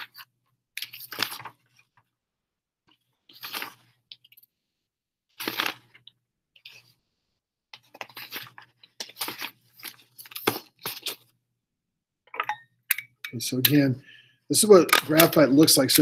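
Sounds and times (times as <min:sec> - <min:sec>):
paper rustling: 0:00.0 - 0:02.0, 0:07.8 - 0:11.3.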